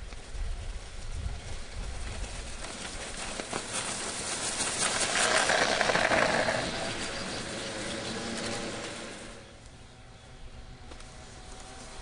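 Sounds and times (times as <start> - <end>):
snow crackling under plow: 0.0 - 12.0
model train motors whirring: 4.6 - 10.0.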